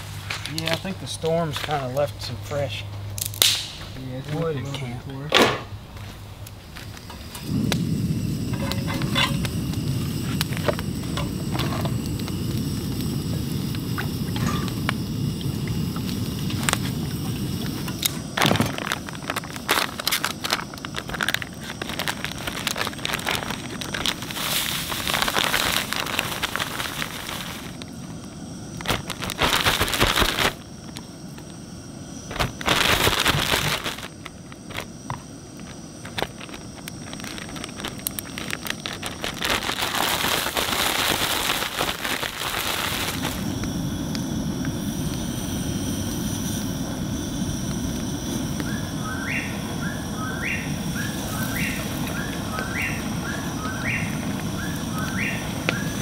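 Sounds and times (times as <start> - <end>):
plastic bag shaken and crinkling: 18.4 - 27.8, 28.8 - 30.6, 32.3 - 34.8, 36.2 - 43.4.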